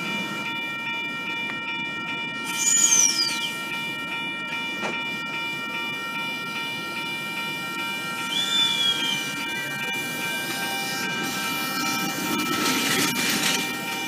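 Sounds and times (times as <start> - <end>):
electric train motor whine: 0.0 - 14.0
loud high squeal: 2.4 - 3.6, 8.2 - 9.5.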